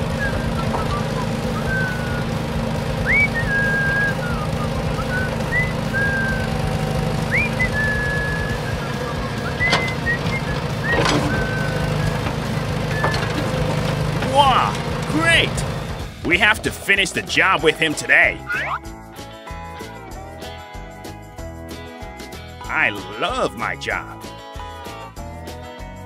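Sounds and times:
whistled notes: 0.0s - 2.4s, 3.0s - 6.6s, 7.3s - 13.6s, 17.4s - 18.9s
low engine-like drone: 0.0s - 20.8s.

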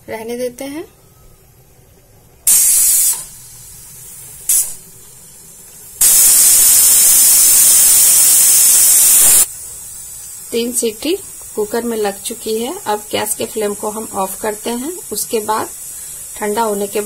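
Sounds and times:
pressure cooker whistle hissing steam: 2.4s - 3.6s, 6.0s - 17.0s.

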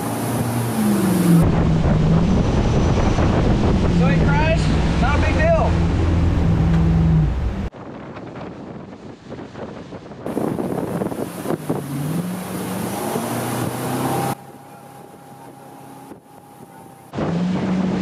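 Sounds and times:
boat engine under throttle: 0.0s - 7.7s, 10.3s - 18.0s
rushing water: 0.0s - 7.8s, 10.3s - 18.0s
wind buffeting microphone: 1.3s - 14.4s.

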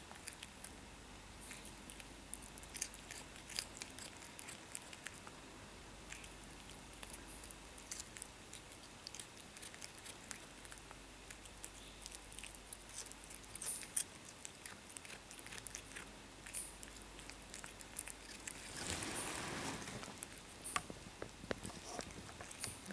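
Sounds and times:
cat crunching food: 0.0s - 22.9s
rustling: 6.1s - 22.9s.

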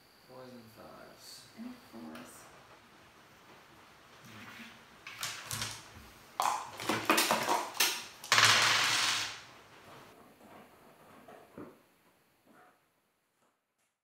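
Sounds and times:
dice rattling in a cup: 6.8s - 9.4s.

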